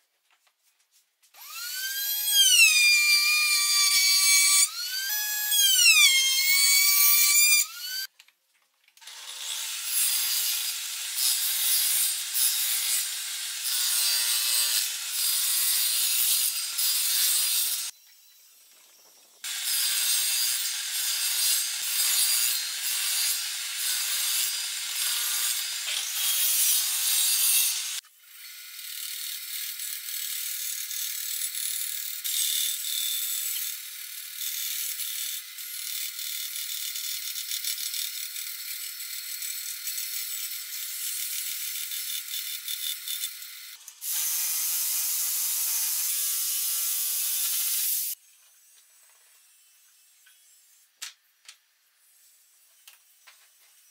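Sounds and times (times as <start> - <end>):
band saw cutting wood: 1.4 - 8.1, 19.4 - 29.8
table saw cutting wood: 1.4 - 8.1, 9.0 - 18.4, 19.4 - 30.3, 32.2 - 48.2.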